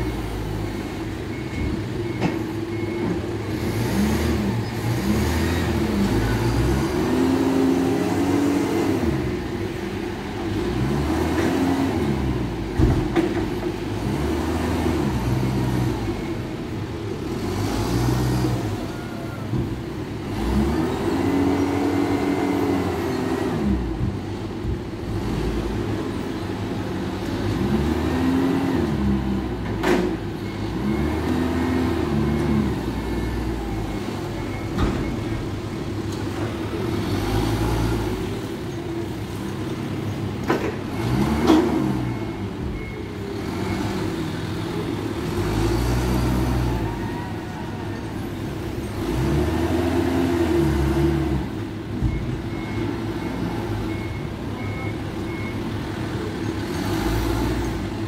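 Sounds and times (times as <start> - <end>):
forklift engine revving: 0.0 - 47.0, 48.0 - 58.0
reversing beeper: 30.4 - 36.0.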